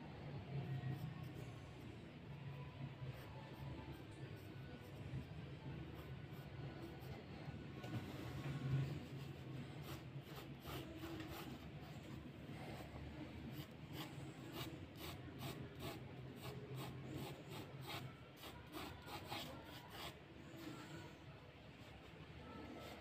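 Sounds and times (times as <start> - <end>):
pencil scratching on paper: 8.8 - 12.2, 12.8 - 21.1.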